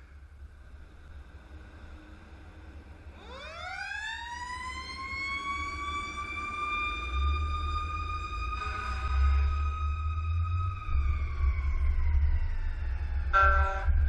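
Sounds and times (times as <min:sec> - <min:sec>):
fire engine siren wailing: 0:03.2 - 0:14.0
low rumble: 0:05.7 - 0:14.0.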